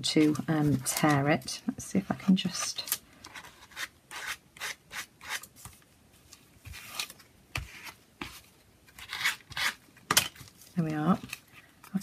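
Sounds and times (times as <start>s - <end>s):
paper rubbing and scraping: 6.6s - 9.8s.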